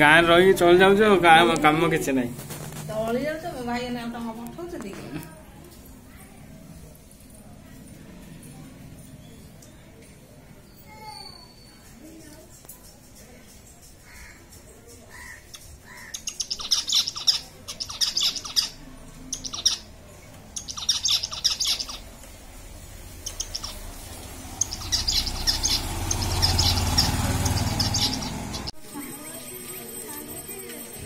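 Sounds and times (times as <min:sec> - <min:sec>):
finches chirping: 0:15.1 - 0:28.7.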